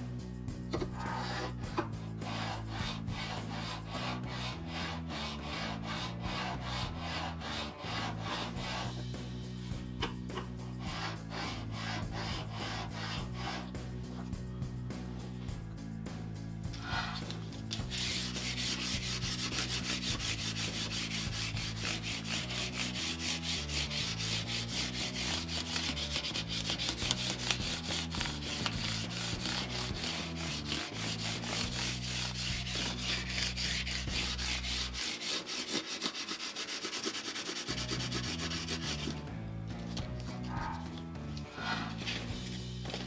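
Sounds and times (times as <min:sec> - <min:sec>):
sandpaper scrubbing: 0:01.0 - 0:09.0, 0:10.7 - 0:14.2, 0:16.8 - 0:39.2.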